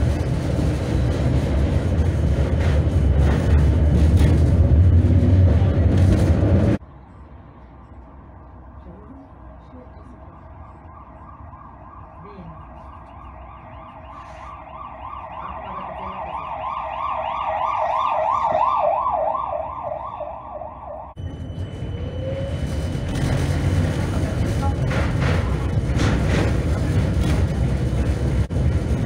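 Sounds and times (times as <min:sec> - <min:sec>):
loud low rumble: 0:00.0 - 0:07.6, 0:20.7 - 0:29.0
siren yelping: 0:09.2 - 0:23.2.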